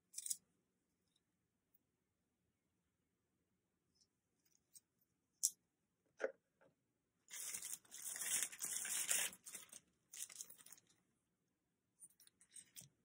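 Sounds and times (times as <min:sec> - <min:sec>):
plastic packaging tearing: 0:07.3 - 0:10.8.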